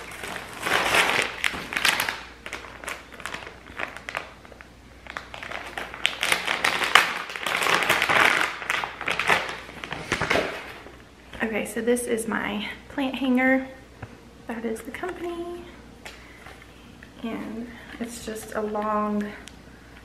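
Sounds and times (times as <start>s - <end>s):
plastic bag crinkling: 0.0s - 10.9s.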